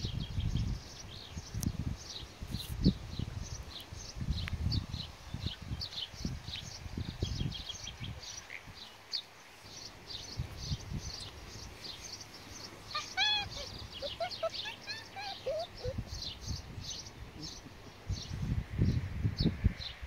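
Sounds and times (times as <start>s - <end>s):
small birds chirping: 0.0s - 20.0s
puppies yelping and squeaking: 12.9s - 16.0s.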